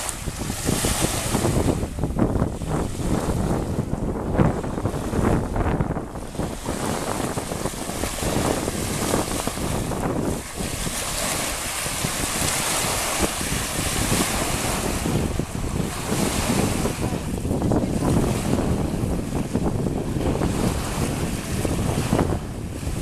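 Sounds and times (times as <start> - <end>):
wind buffeting microphone: 0.0 - 23.0
small waves breaking on pebbles: 7.8 - 14.9.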